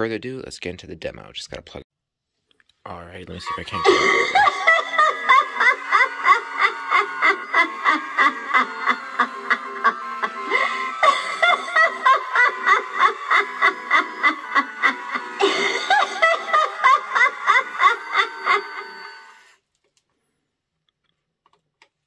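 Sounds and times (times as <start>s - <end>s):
recorded cackling laugh from speaker: 3.4s - 19.4s.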